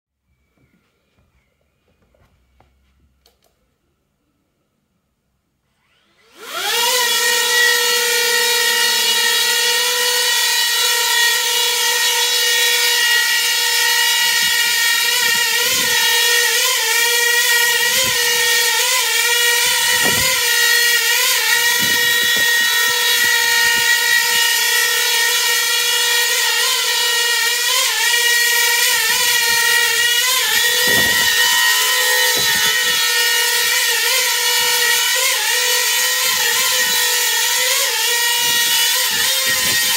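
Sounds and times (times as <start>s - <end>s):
drone motors whining: 5.8s - 39.9s.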